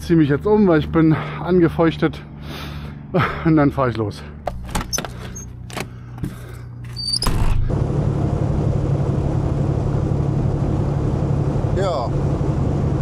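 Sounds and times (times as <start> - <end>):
diesel truck engine: 0.0 - 13.0
road noise: 0.0 - 13.0.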